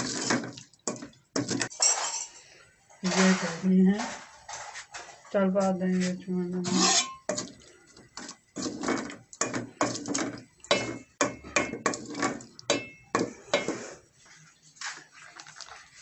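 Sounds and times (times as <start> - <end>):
wooden spoon stirring in a pot: 0.0 - 2.3, 3.0 - 16.0.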